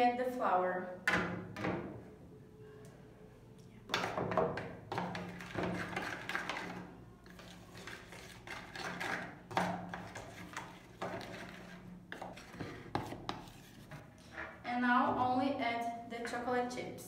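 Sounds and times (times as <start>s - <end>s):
fork scraping a mixing bowl: 5.1s - 14.6s.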